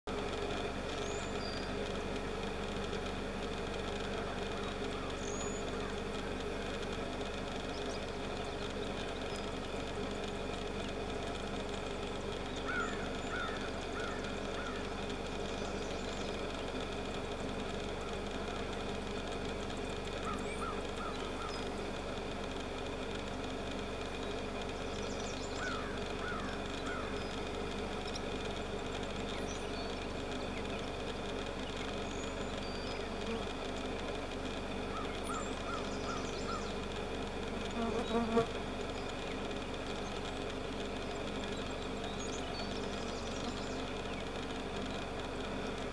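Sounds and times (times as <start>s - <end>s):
camera operating hum: 0.1s - 24.8s
bird calling: 0.8s - 45.9s
bird chirping: 0.9s - 1.8s, 4.2s - 6.4s, 29.0s - 33.4s, 34.9s - 37.0s, 41.2s - 45.3s.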